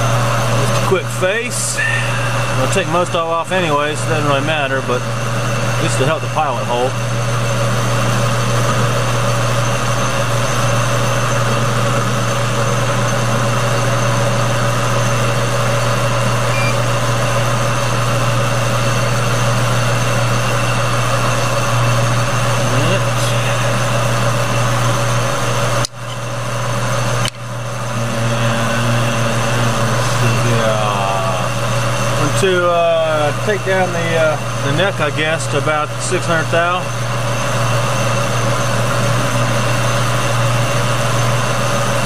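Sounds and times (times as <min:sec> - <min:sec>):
metal lathe running: 0:00.0 - 0:42.0.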